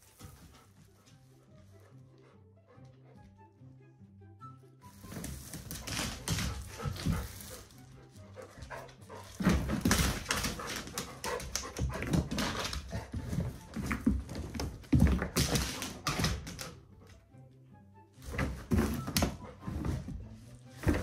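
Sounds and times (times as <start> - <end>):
dog panting: 0.0 - 3.5, 6.1 - 14.0.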